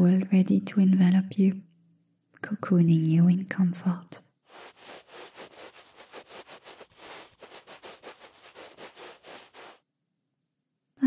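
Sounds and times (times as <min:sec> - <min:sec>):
towel rubbing: 0:04.5 - 0:09.8.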